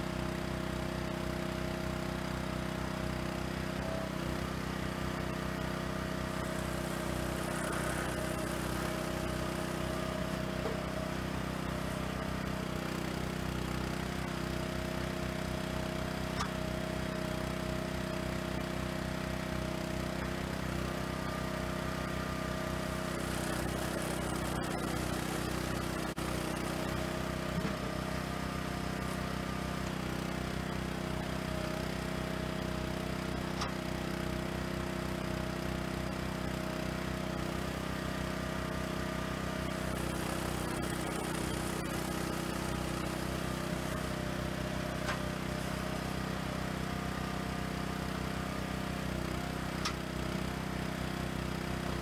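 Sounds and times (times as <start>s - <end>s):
firewood processor engine running: 0.0s - 52.0s.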